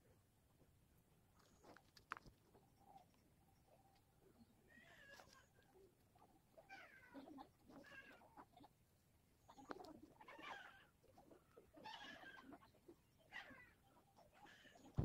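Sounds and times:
faint animal calls: 2.5 - 8.8, 9.4 - 15.0.

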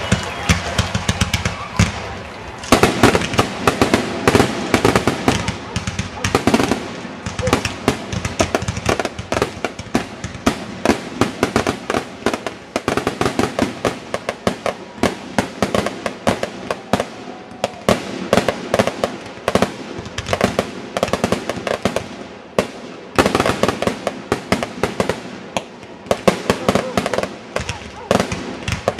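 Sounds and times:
fireworks bursting: 0.0 - 28.9.

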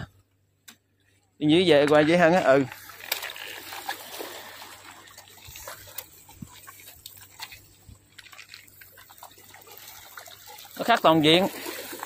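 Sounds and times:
water lapping against rocks: 1.9 - 12.0
small clicks and ticks: 5.6 - 9.4.

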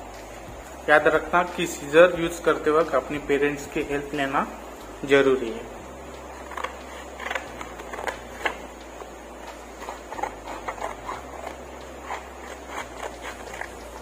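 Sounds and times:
faint low hum: 0.0 - 14.0
paper rustling: 6.4 - 14.0
scissors cutting paper: 6.4 - 14.0.

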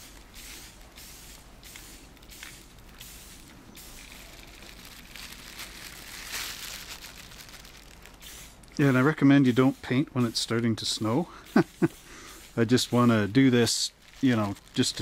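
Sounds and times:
spray-paint can hissing: 0.0 - 6.0, 8.2 - 13.3.

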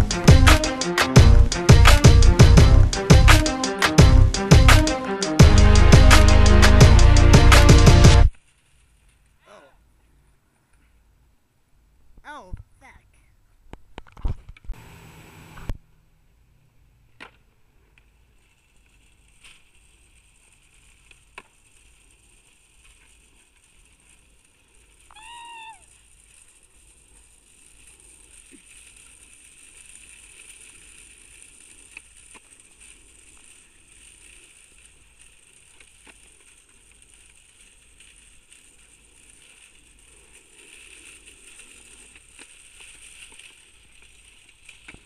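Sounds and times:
skateboard rolling on asphalt: 16.9 - 45.0.

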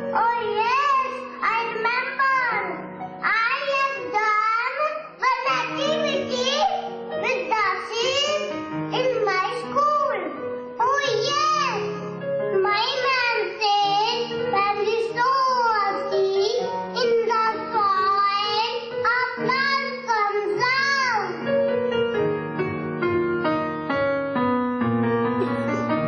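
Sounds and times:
sustained backing music: 0.0 - 26.0
child singing: 0.2 - 6.6, 7.2 - 10.2, 10.8 - 11.9, 12.6 - 21.4.

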